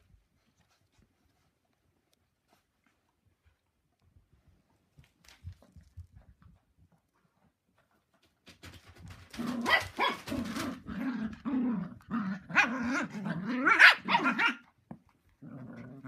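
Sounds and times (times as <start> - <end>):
dogs growling and barking: 9.2 - 14.7, 15.3 - 16.0.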